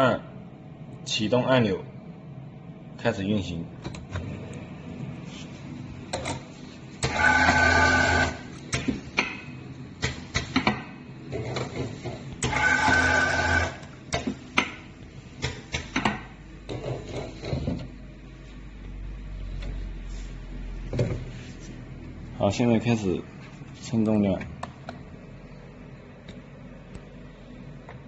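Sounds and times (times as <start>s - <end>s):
pumps whirring: 6.1s - 9.0s, 11.3s - 14.4s.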